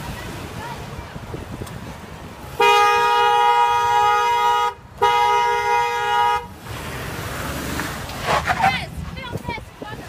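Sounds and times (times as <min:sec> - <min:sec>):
car horn honking: 0:02.5 - 0:06.6.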